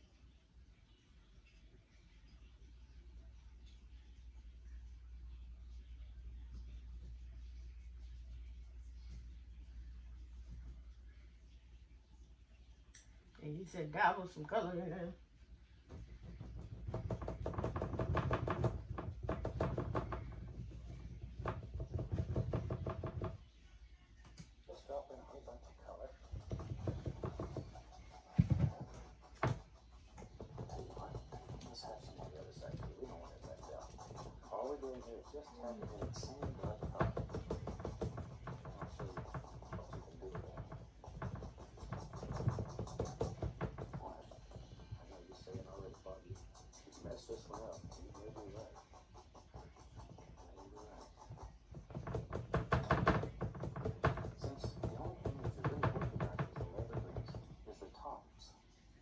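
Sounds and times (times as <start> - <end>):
paintbrush tapping on canvas: 15.9 - 23.4, 25.4 - 57.6.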